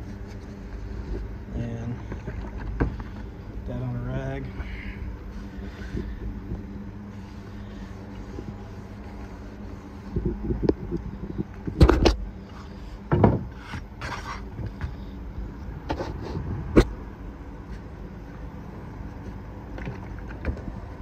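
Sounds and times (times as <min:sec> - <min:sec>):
low motor hum: 0:00.0 - 0:21.0
rag wiping wood: 0:05.2 - 0:10.3.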